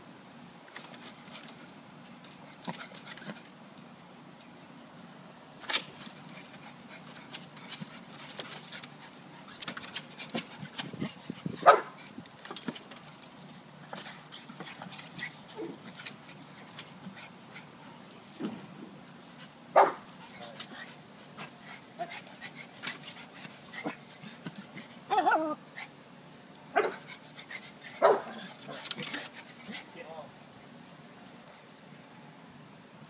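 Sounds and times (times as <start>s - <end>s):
dog barking: 19.8s - 20.0s, 26.8s - 27.0s, 28.0s - 28.3s.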